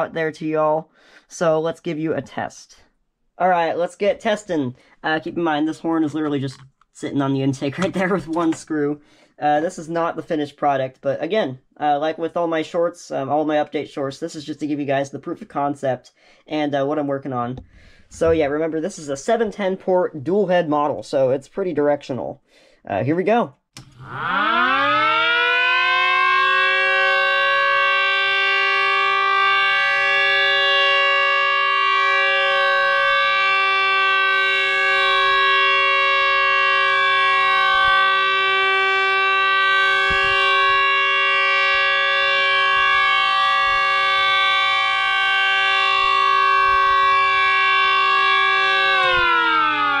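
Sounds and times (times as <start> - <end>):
siren two-tone chord: 23.8 - 50.0.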